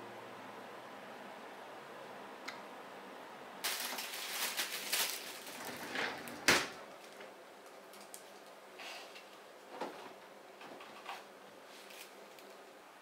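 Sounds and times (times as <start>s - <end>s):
plastic bag crinkling: 3.6s - 8.6s.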